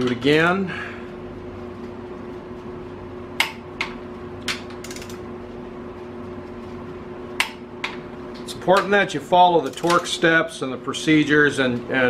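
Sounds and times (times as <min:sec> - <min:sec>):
fan humming: 0:00.0 - 0:12.0
torque wrench clicks: 0:04.8 - 0:05.2, 0:09.6 - 0:10.1.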